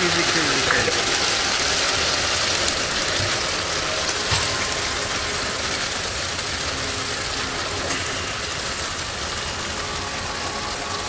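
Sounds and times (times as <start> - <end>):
heavy rain and wind: 0.0 - 11.0
raindrops ticking: 0.0 - 11.0.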